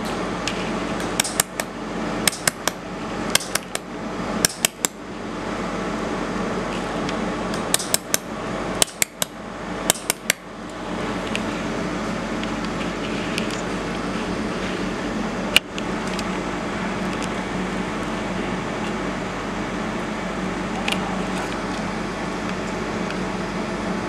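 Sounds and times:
steady machine hum: 0.0s - 24.0s
laser welder clicks: 1.0s - 5.0s, 7.5s - 10.4s.

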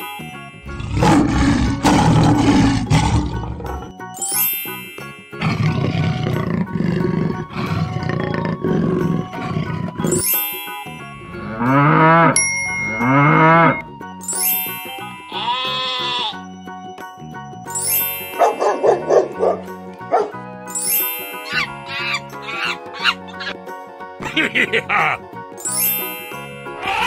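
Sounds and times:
background music: 0.0s - 27.0s
big cat growling roar: 0.7s - 3.9s, 5.4s - 10.1s
cow mooing: 11.4s - 12.4s, 13.0s - 13.8s, 15.3s - 16.4s
bell ding: 12.4s - 15.2s
sheep bleating: 15.3s - 16.4s.

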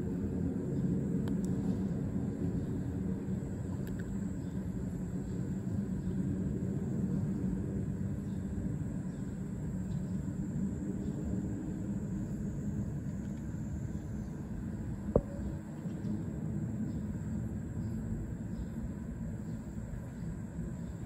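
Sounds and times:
low outdoor rumble: 0.0s - 21.0s.

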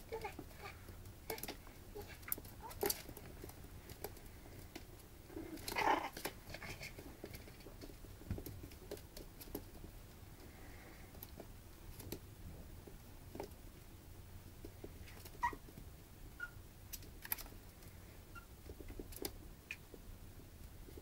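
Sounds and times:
puppy squeaking: 15.4s - 15.6s, 16.4s - 16.6s, 18.3s - 18.5s.

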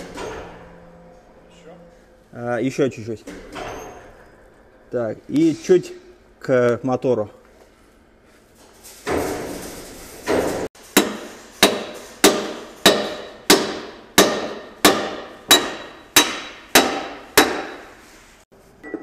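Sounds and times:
scraping rustle: 7.7s - 10.7s
hammer striking steel pin: 10.9s - 18.0s.

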